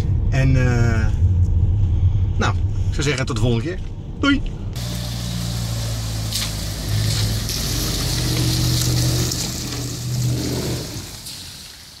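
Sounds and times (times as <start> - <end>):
car engine running: 4.8 - 11.2
tyres hissing on wet pavement: 4.8 - 12.0.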